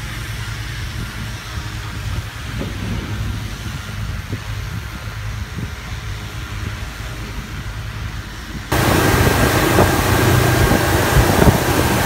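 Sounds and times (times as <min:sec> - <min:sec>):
low engine hum: 0:00.0 - 0:12.0
wind rushing over microphone: 0:00.3 - 0:12.0
outboard engine running: 0:08.7 - 0:12.0.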